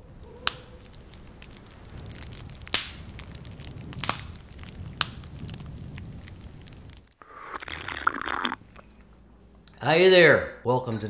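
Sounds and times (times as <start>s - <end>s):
wood fire crackling: 0.1s - 8.9s
sharp fire pops: 0.4s - 7.2s
flame rushing: 1.7s - 8.6s.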